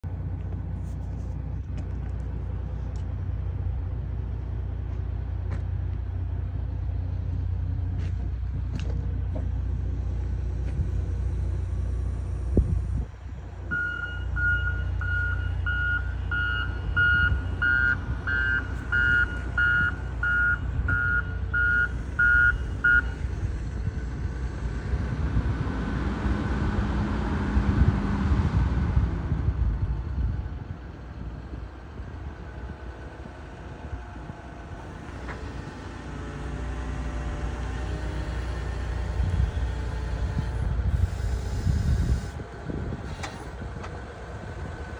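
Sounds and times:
loader engine running: 0:00.0 - 0:44.9
reversing alarm beeping: 0:13.7 - 0:23.3.

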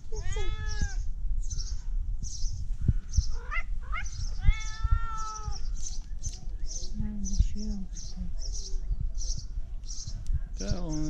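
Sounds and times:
cat meowing: 0:00.2 - 0:01.0, 0:03.4 - 0:05.6.

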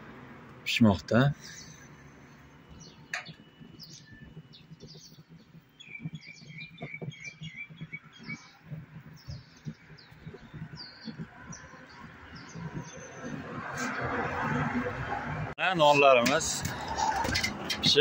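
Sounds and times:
small birds chirping: 0:01.4 - 0:14.1.

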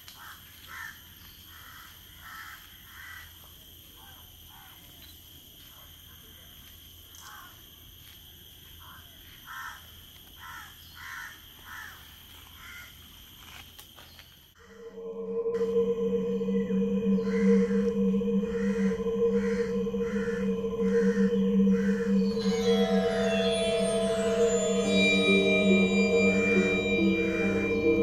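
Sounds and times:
high-pitched hum: 0:14.6 - 0:28.0.

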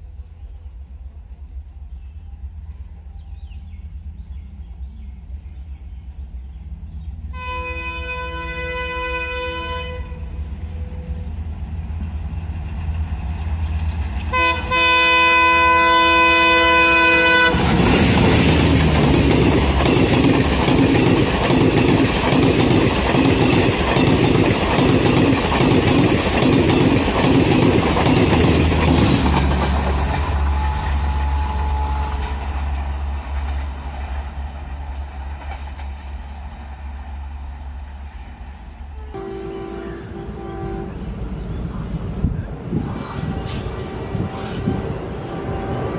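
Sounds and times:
train rumble: 0:00.0 - 0:45.9
train horn blasts: 0:07.3 - 0:11.4, 0:14.3 - 0:18.4, 0:30.1 - 0:32.7, 0:39.0 - 0:41.4, 0:42.7 - 0:45.9
rhythmic wheel clatter: 0:17.8 - 0:30.5.

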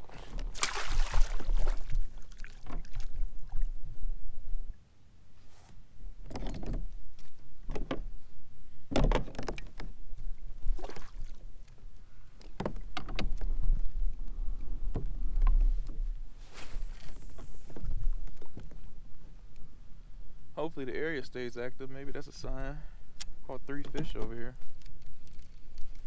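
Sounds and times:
water slapping against kayak hull: 0:00.2 - 0:03.6.

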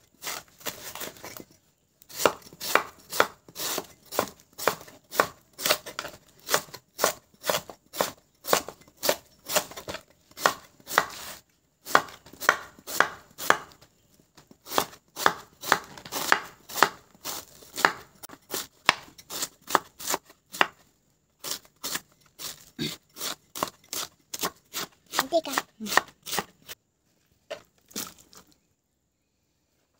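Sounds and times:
knife slicing banana blossom: 0:02.1 - 0:13.8, 0:14.6 - 0:20.8, 0:21.4 - 0:26.8
knife striking wooden board: 0:02.2 - 0:11.3, 0:11.9 - 0:13.8, 0:14.7 - 0:17.0, 0:17.7 - 0:20.8.

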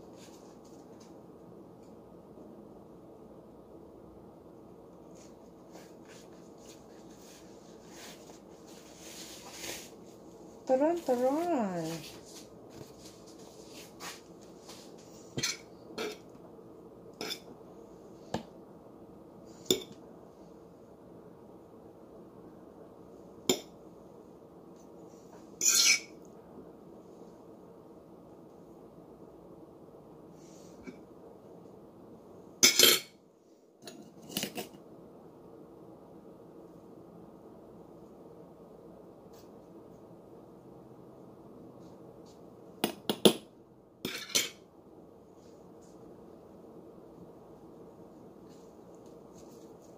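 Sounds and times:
metal spoon clinking on dishes: 0:32.6 - 0:33.1, 0:44.1 - 0:44.6.

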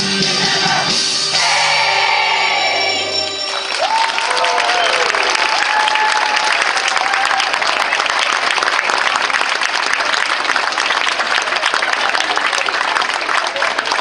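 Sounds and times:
audience applauding: 0:03.3 - 0:14.0.

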